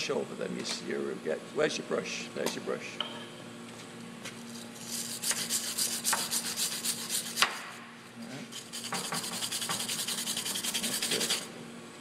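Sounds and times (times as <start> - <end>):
bristle brush scrubbing metal: 4.9 - 7.4, 8.6 - 11.5.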